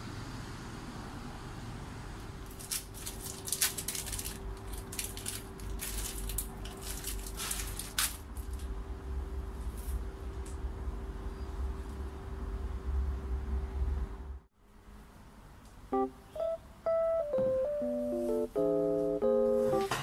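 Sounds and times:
plastic wrapper crinkling: 2.5s - 8.7s
faint hum: 2.5s - 19.6s.

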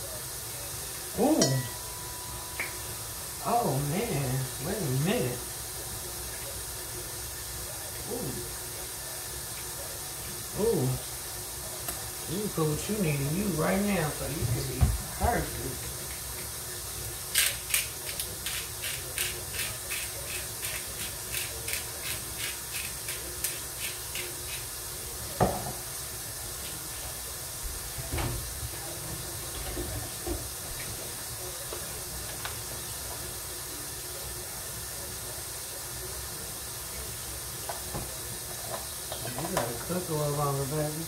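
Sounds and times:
steady hiss: 0.0s - 41.0s
seasoning shaker rattling: 0.2s - 26.1s.

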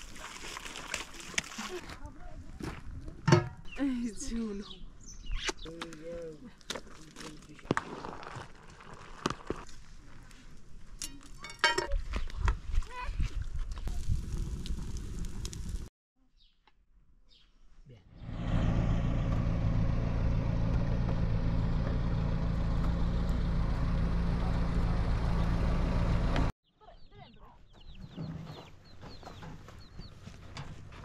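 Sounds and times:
small birds chirping: 3.6s - 6.0s, 16.4s - 17.6s, 26.7s - 30.4s
vehicle engine running: 18.2s - 26.5s.

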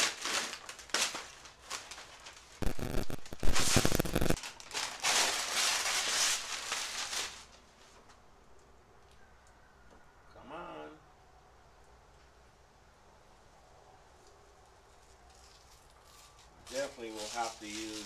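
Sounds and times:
paper rustling: 0.0s - 8.1s, 15.3s - 18.0s
masking paper crackling: 0.0s - 8.2s, 14.9s - 18.0s.

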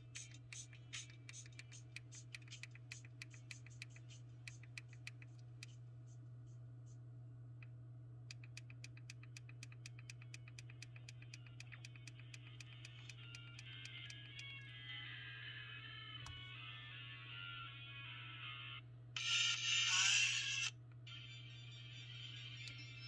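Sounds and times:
tinny music ticking beat: 0.0s - 7.0s, 8.3s - 14.6s
steady low hum: 0.0s - 23.0s.

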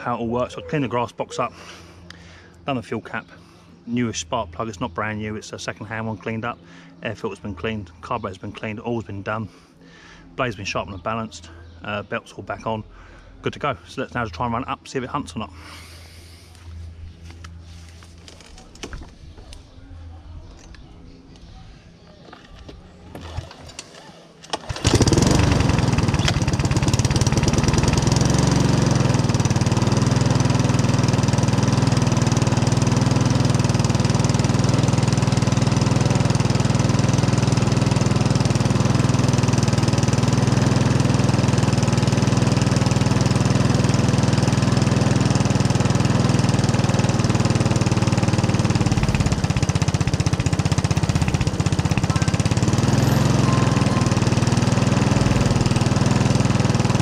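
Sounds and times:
lawnmower engine starting and running: 22.2s - 57.0s.

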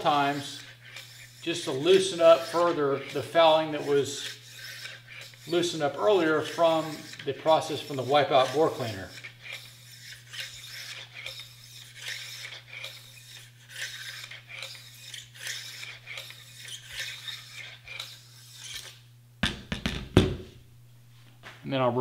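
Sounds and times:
bore brush rasping in barrel: 0.0s - 19.0s
sharp knock: 19.4s - 20.5s.

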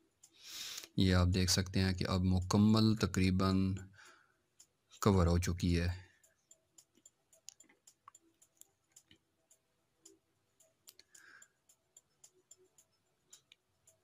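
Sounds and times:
faint scattered clicks: 4.6s - 14.0s.

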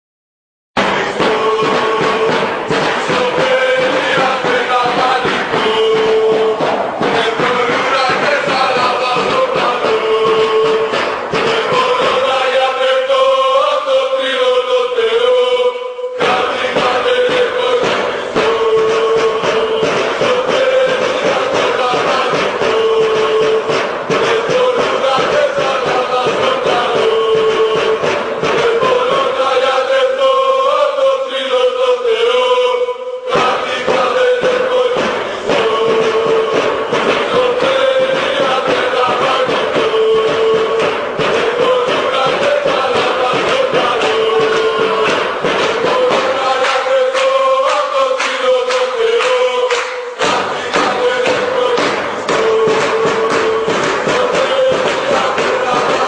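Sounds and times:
music beat: 0.8s - 14.5s, 16.2s - 31.6s, 33.3s - 56.0s
group of voices chanting: 0.8s - 56.0s.

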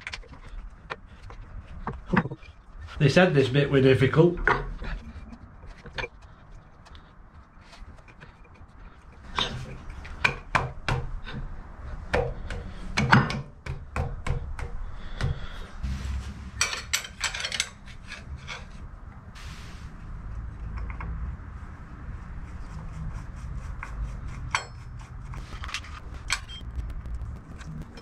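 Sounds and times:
metal parts clicking and knocking: 16.6s - 18.6s, 24.5s - 26.6s.

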